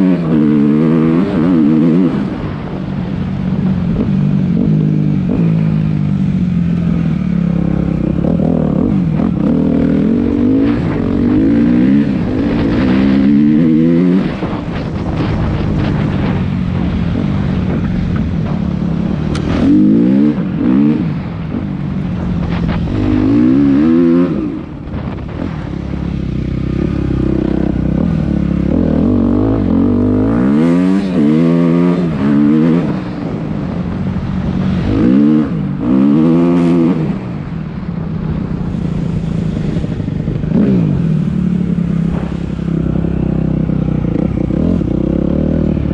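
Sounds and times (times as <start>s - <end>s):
dirt bike engine revving: 0.0s - 2.7s, 6.6s - 37.4s.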